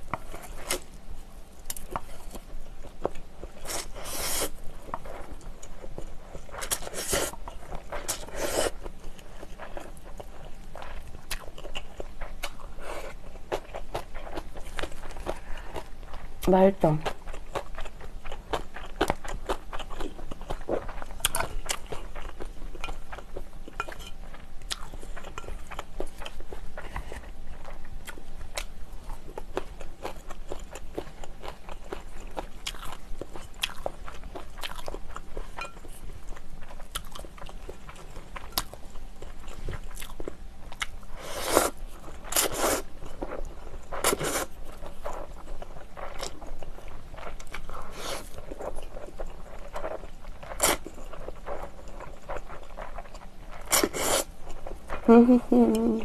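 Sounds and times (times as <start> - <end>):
chewing noodles: 1.6 - 56.0.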